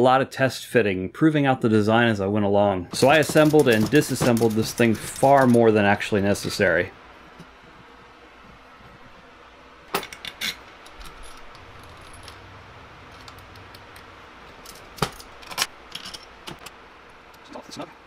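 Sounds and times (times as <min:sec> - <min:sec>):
metal hardware clinking on steel: 0:03.0 - 0:05.7, 0:09.9 - 0:16.8.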